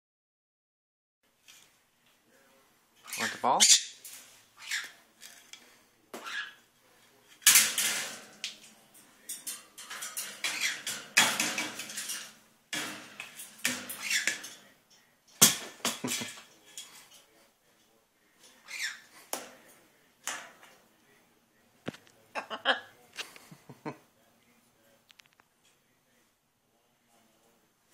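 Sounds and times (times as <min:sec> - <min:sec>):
ball and beak clattering on wire: 0:07.3 - 0:17.3, 0:18.4 - 0:20.8.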